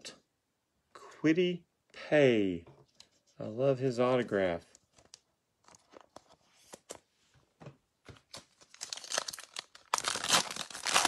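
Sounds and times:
foil wrapper crinkling: 0:08.3 - 0:11.0
foil pack tearing open: 0:08.7 - 0:11.0.

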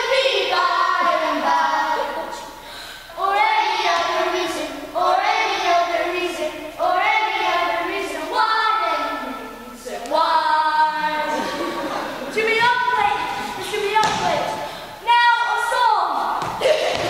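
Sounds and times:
child singing unaccompanied: 0:00.0 - 0:02.5, 0:03.2 - 0:11.4.

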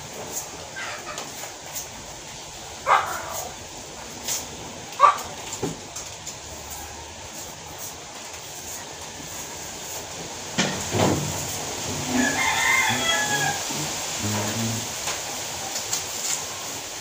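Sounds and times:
rooster crowing: 0:11.8 - 0:14.9.

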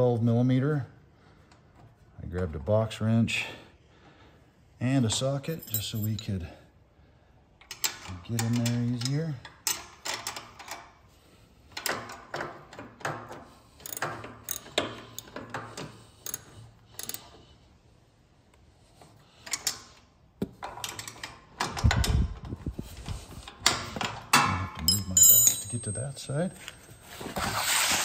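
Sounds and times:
wrench clinking on bolt: 0:05.4 - 0:06.3, 0:13.8 - 0:17.3, 0:24.3 - 0:26.5
socket ratchet clicking: 0:13.8 - 0:15.4, 0:16.2 - 0:17.3.

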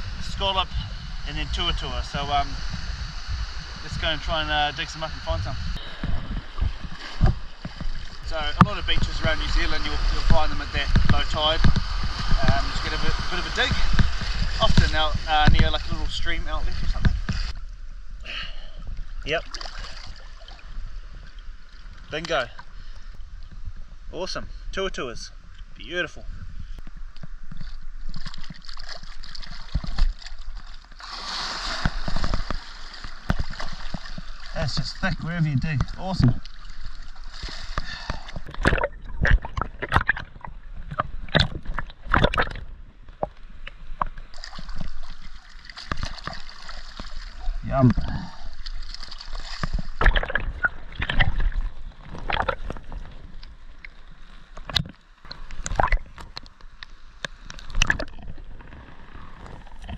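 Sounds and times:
seawater sloshing and splashing: 0:05.0 - 0:17.6, 0:19.3 - 0:21.8, 0:27.5 - 0:47.6, 0:48.2 - 0:56.4.

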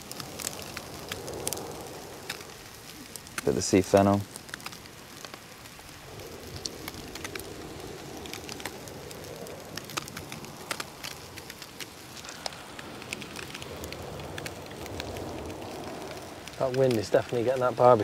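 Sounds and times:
charcoal fire crackling and sizzling: 0:00.0 - 0:18.0
strong wind: 0:00.0 - 0:18.0.

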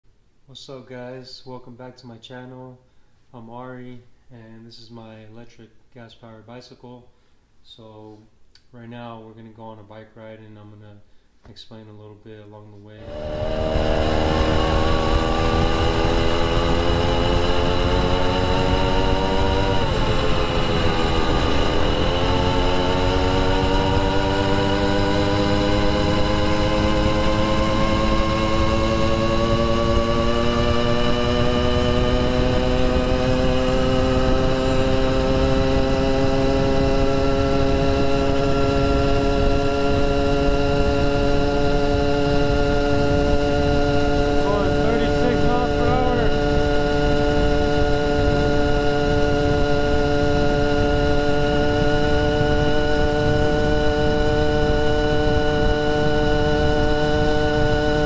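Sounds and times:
wind rumbling on microphone: 0:13.0 - 0:16.4, 0:40.8 - 0:57.8
small two-stroke engine running: 0:13.0 - 0:58.0
wind and road noise: 0:13.0 - 0:58.0.

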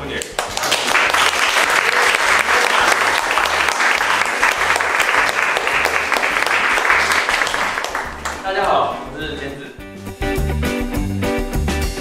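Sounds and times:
audience clapping: 0:00.0 - 0:08.8.

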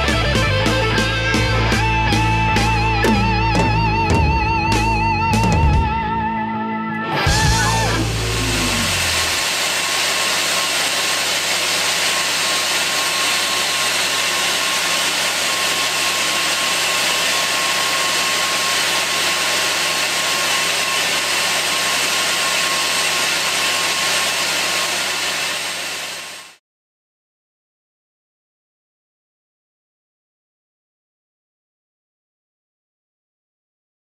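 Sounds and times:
air compressors running: 0:07.2 - 0:26.6
low hum: 0:07.3 - 0:09.4.

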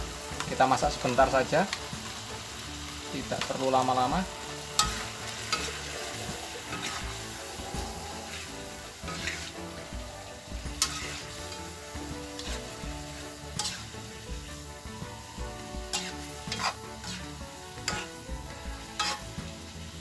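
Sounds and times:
food sizzling in a wok: 0:00.0 - 0:20.0
metal spatula scraping a pan: 0:02.5 - 0:20.0.

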